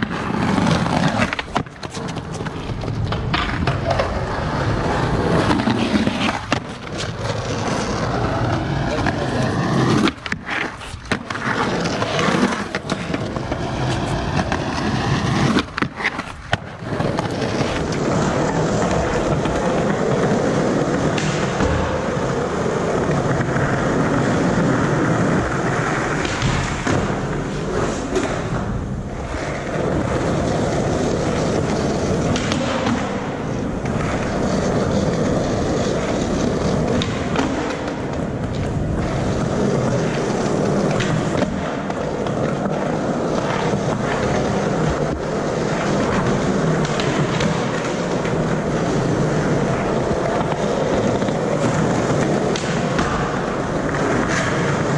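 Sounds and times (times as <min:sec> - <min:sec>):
skateboard clacks: 0:00.0 - 0:54.9
skateboard wheels rolling on concrete: 0:00.0 - 0:54.9.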